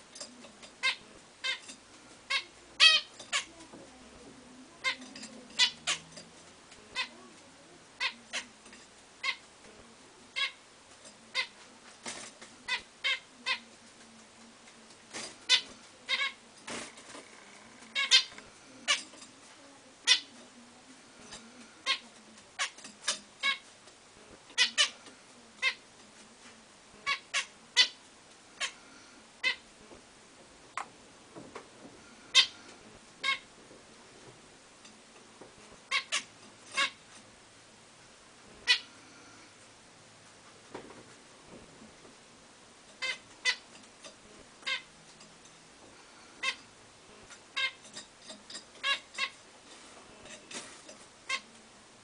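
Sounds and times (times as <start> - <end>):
finches calling: 17.8 - 19.1.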